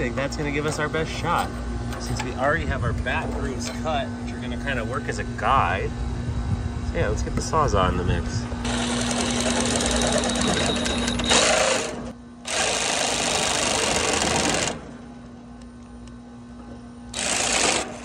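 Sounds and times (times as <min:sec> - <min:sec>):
reciprocating saw cutting metal: 0:17.1 - 0:18.0.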